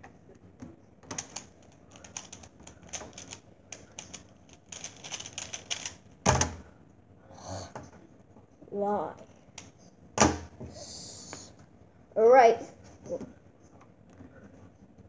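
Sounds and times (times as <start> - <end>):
plastic puzzle clicking turns: 1.1 - 6.0.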